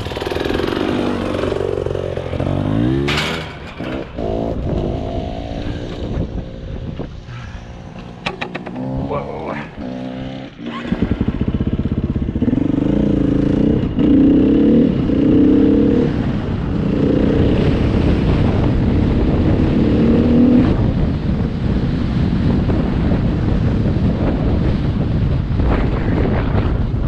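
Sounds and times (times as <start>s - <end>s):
rushing noise: 0.0s - 14.1s
dirt bike engine accelerating: 0.0s - 21.8s.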